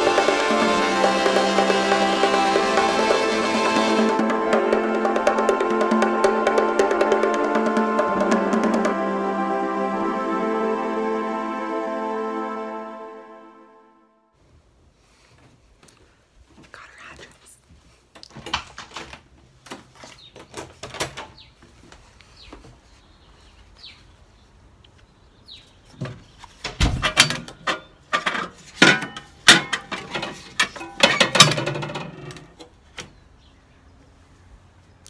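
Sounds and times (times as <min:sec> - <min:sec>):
metal mailbox clattering: 0:26.8 - 0:32.6.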